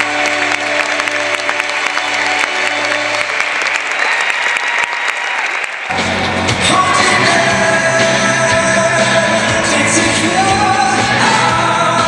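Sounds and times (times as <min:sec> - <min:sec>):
live rock band playing: 0:05.9 - 0:12.0
person singing: 0:05.9 - 0:12.0.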